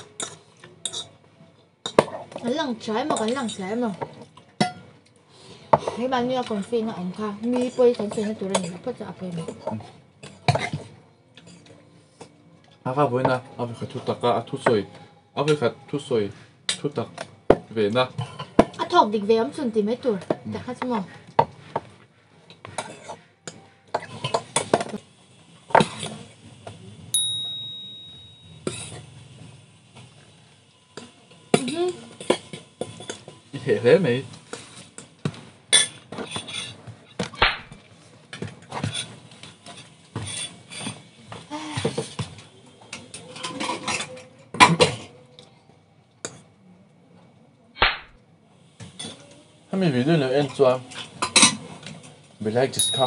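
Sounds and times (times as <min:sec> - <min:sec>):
cutlery clinking against bowls: 0:00.0 - 0:01.2, 0:01.8 - 0:06.7, 0:07.4 - 0:14.0, 0:22.5 - 0:25.0, 0:27.2 - 0:29.2, 0:31.0 - 0:33.5, 0:34.5 - 0:36.8, 0:42.9 - 0:45.1, 0:50.4 - 0:52.2, 0:52.8 - 0:53.0
sharp ringing clink: 0:27.2 - 0:28.6, 0:52.8 - 0:53.0
metal spoon scraping ceramic bowl: 0:35.8 - 0:36.8.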